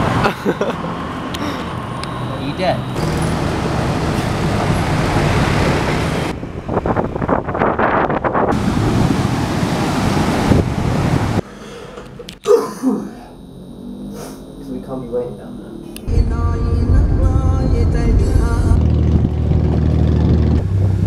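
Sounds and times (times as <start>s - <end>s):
road traffic: 0.0s - 21.0s
person coughing: 1.4s - 1.7s, 12.4s - 13.3s
wind rushing over microphone: 3.8s - 11.4s.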